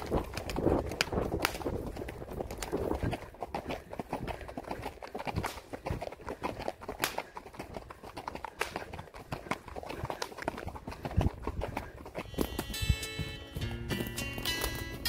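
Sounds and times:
horse hooves on dirt road: 0:00.0 - 0:15.0
music: 0:12.2 - 0:15.0.

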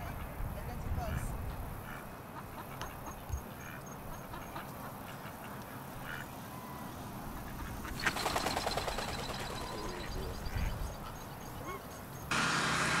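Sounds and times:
faint outdoor background: 0:00.0 - 0:13.0
duck calls: 0:01.0 - 0:06.3
duck wingbeats: 0:07.4 - 0:10.8.

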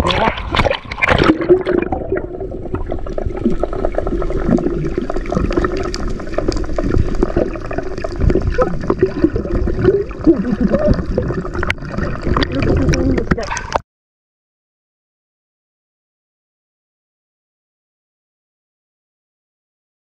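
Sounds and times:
sea water churning and gurgling: 0:00.0 - 0:13.8.

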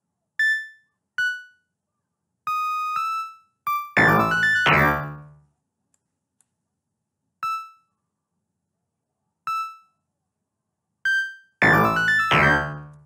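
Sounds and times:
played-back melody: 0:02.5 - 0:05.4, 0:11.1 - 0:13.0.

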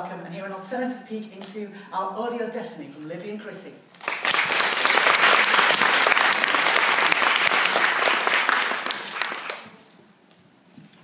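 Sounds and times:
audience applauding: 0:04.0 - 0:09.8.

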